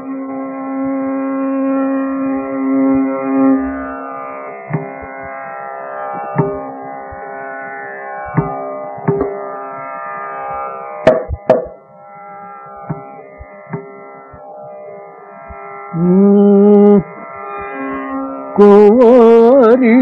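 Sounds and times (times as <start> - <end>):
tanpura drone: 0.0 - 20.0
mridangam drum strokes: 11.1 - 11.8, 12.7 - 14.0.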